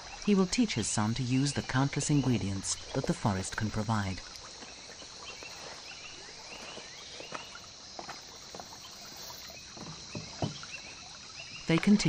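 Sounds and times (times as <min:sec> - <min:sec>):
insects droning: 0:00.0 - 0:12.0
sharp knocks: 0:09.8 - 0:10.6.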